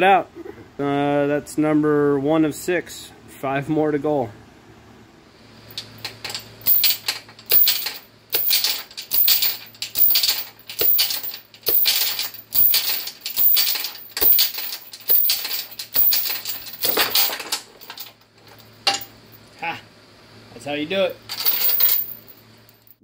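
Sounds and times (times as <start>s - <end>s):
chain and weight clanking: 5.7s - 19.1s, 21.3s - 23.0s.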